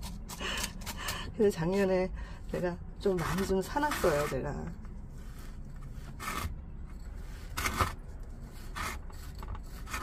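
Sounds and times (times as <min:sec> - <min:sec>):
potting mix scraping in a pot: 0:02.5 - 0:10.0.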